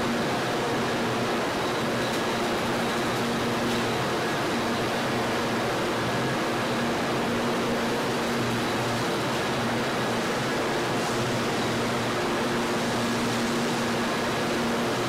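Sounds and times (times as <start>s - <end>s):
machinery hiss: 8.0s - 15.0s.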